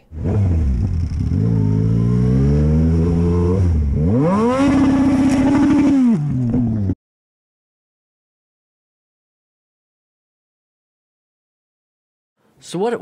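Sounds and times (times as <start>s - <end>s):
motorcycle engine accelerating: 0.0s - 7.0s.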